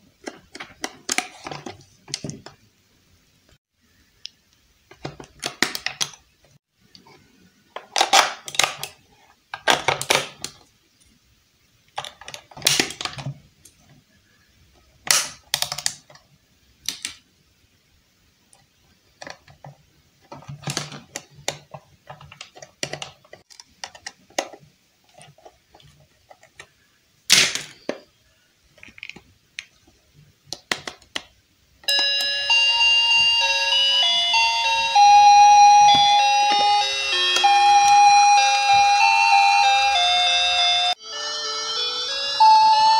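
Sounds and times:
electronic beeping melody: 31.9 - 42.9.

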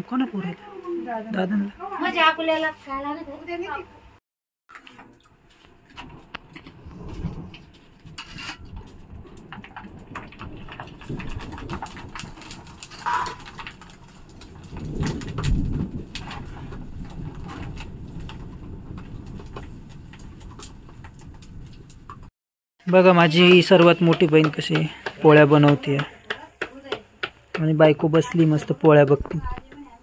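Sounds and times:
steady rain: 6.0 - 22.3.

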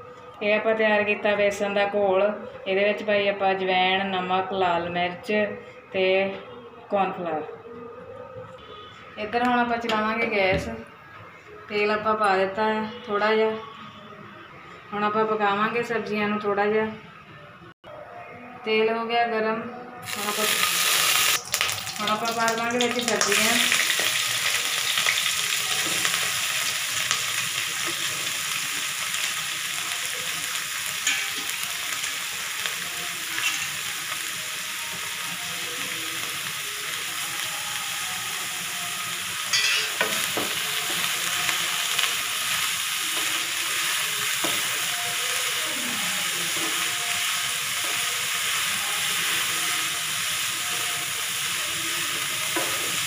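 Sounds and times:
vegetables sizzling in hot oil: 20.0 - 53.0.

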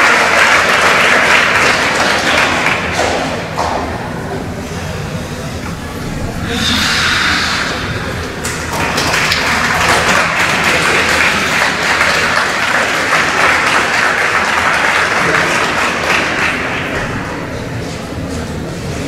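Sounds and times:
audience applauding: 0.0 - 3.4, 7.4 - 17.4.

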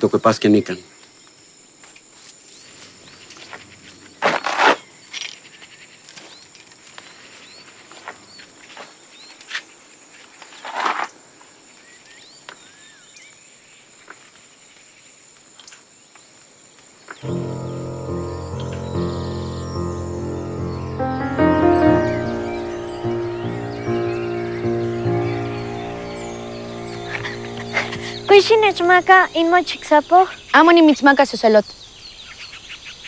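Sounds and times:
music: 17.2 - 30.3
insects buzzing: 17.2 - 30.9.

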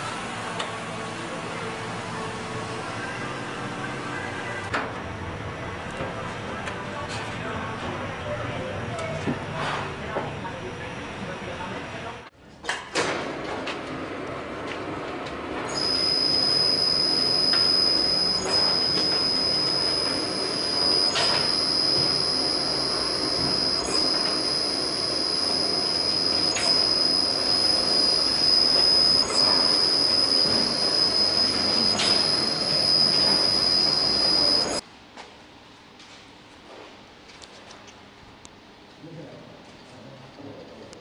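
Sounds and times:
factory machine high-pitched whine: 0.0 - 12.3, 14.0 - 34.8.

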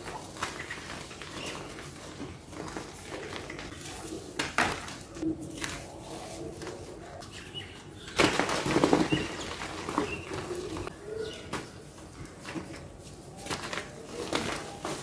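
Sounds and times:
chalk rustling in hands: 5.1 - 7.4.

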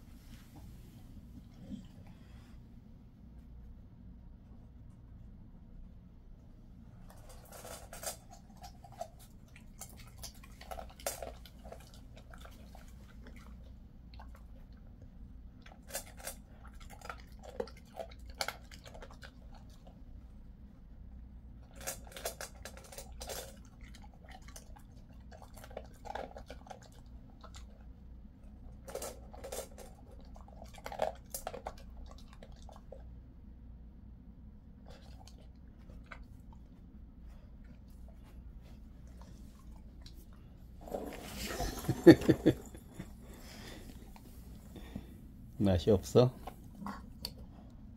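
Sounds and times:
dog crunching dry food: 7.1 - 14.8, 15.6 - 20.0, 21.6 - 27.8, 28.5 - 33.0.

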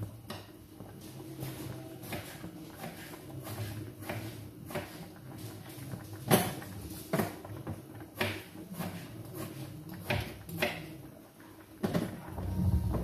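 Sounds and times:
knife chopping on cutting board: 2.1 - 5.0.

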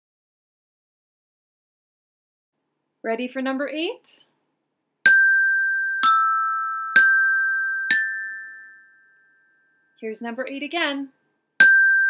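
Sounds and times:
resonator bells struck with mallet: 5.1 - 9.0, 11.6 - 12.0.

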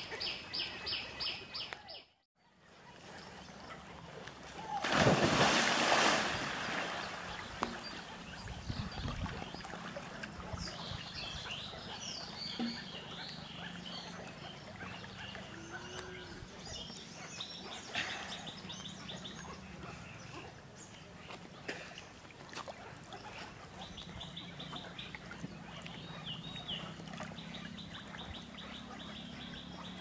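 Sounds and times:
heavy splash into pond water: 4.6 - 8.0
birds chirping: 4.6 - 30.0
water sloshing from swimming: 4.8 - 29.9.

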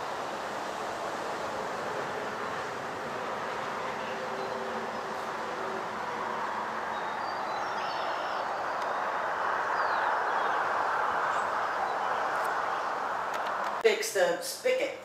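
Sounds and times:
outdoor background rush: 0.0 - 14.7
high bird chirps: 6.9 - 10.6.

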